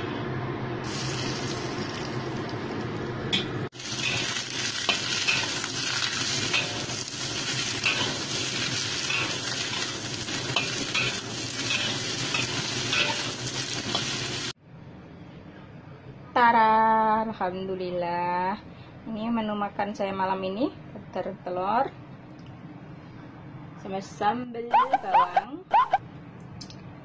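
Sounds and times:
gourd sizzling in hot oil: 0:00.8 - 0:14.6
spatula scraping a wok: 0:06.3 - 0:14.3.

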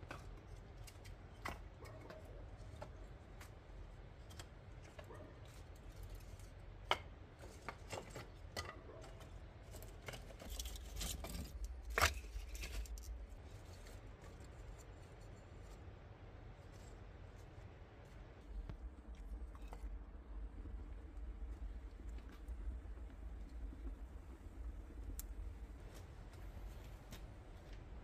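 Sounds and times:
wood sticks knocking and clattering: 0:00.0 - 0:03.5, 0:06.8 - 0:14.3.

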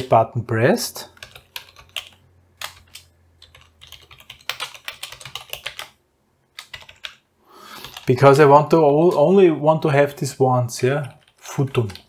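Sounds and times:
computer keyboard typing: 0:01.1 - 0:08.3, 0:11.0 - 0:12.0.

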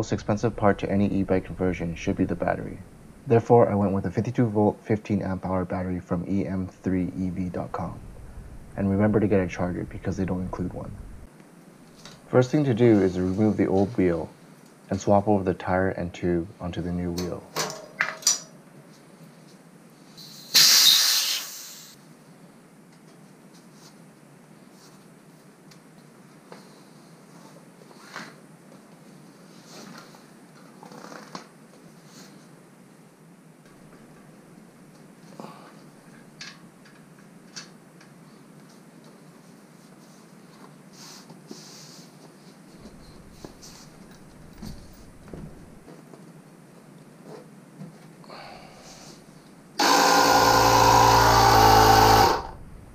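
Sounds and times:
air hissing from tire valve: 0:20.2 - 0:22.0.

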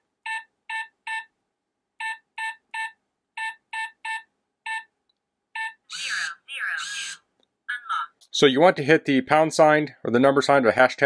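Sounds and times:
keypad short beeps: 0:02.0 - 0:04.9.

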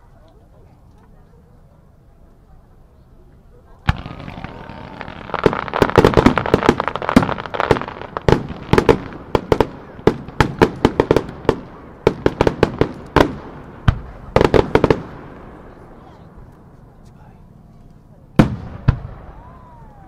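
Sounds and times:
fireworks bangs: 0:03.9 - 0:16.2, 0:18.4 - 0:20.0.

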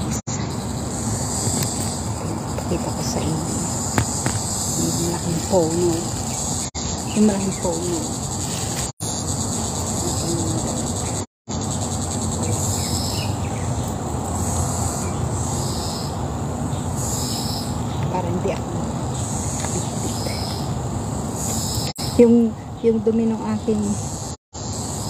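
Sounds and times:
pulsing high insect band: 0:00.0 - 0:22.5, 0:23.1 - 0:25.0
insects chirring: 0:00.0 - 0:25.0.

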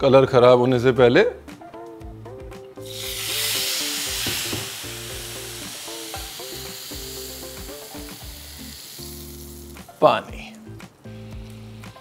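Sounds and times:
water sizzling in hot fat: 0:02.8 - 0:10.1.

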